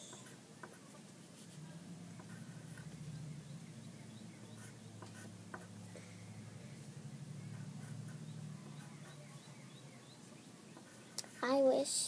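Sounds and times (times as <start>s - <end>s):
low steady hum: 0.0s - 11.8s
pencil writing on paper: 0.1s - 3.0s, 4.4s - 5.8s, 7.5s - 9.3s.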